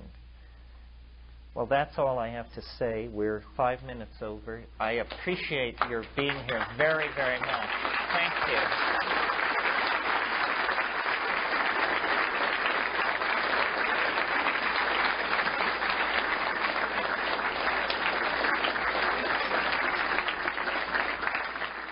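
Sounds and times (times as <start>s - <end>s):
audience applauding: 5.8s - 21.9s.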